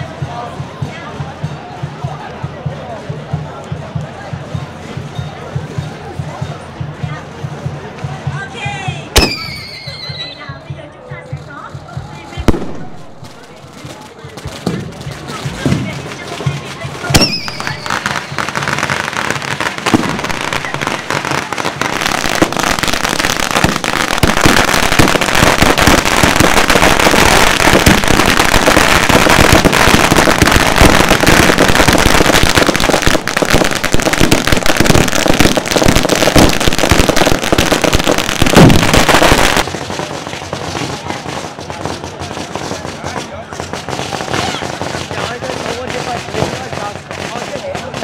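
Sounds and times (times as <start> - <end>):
firecrackers crackling: 9.2 - 10.5, 11.2 - 48.0.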